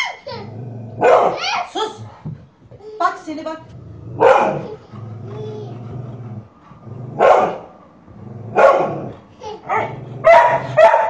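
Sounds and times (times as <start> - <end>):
dog growling: 0.4 - 1.1, 3.7 - 10.8
dog barking: 1.0 - 1.6, 4.2 - 4.7, 7.2 - 7.7, 8.6 - 9.1, 9.7 - 11.0.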